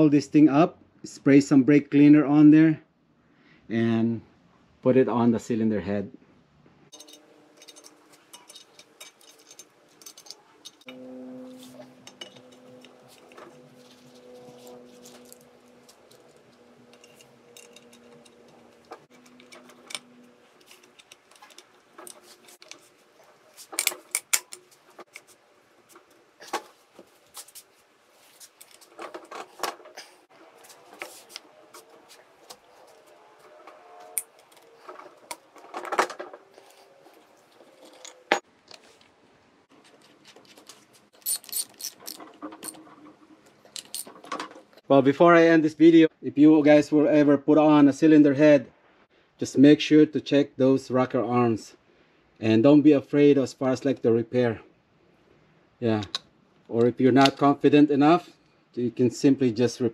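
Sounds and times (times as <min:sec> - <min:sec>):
metal parts clicking and clinking: 0:06.9 - 0:26.7, 0:28.4 - 0:30.2, 0:30.8 - 0:39.1, 0:39.8 - 0:44.8.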